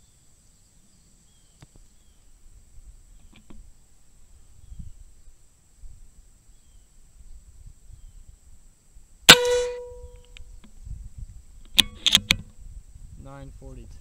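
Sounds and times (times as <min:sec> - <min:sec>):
air rifle shot: 0:09.3 - 0:10.2.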